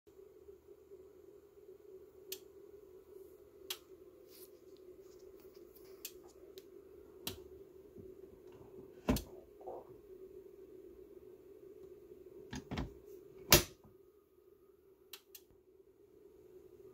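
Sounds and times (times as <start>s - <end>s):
steady hum: 0.1s - 16.9s.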